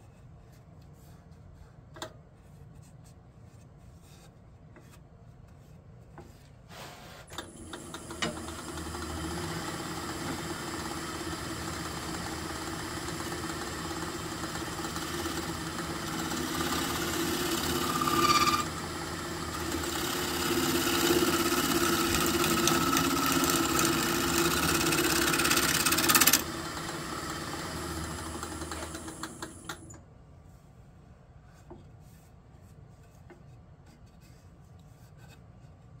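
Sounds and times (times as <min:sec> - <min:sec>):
lathe motor hum: 0:07.5 - 0:29.9
gouge cutting wood on lathe: 0:07.6 - 0:29.8.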